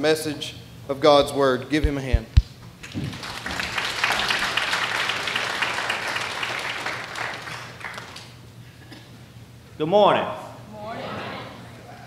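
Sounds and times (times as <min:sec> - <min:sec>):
congregation applauding: 0:02.8 - 0:08.4.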